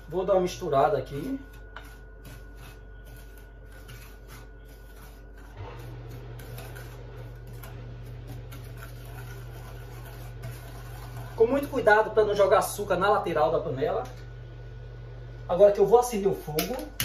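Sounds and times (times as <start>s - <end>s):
spoon scraping a saucepan: 0.0s - 12.4s
steady low hum: 0.0s - 17.0s.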